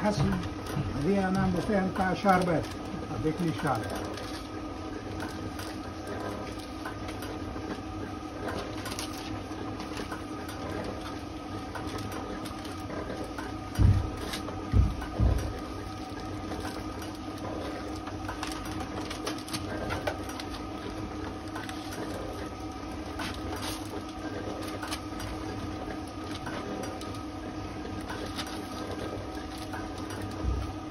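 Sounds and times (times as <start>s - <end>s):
paper rustling: 0.0s - 4.5s, 15.5s - 30.8s
steady workshop hum: 0.0s - 30.9s.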